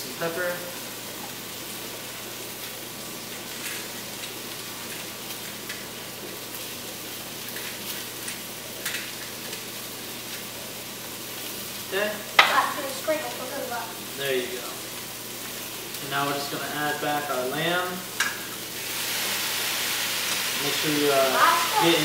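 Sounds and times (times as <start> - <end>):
vegetables sizzling in a pot: 0.0 - 22.0
faint crackles: 2.6 - 11.8.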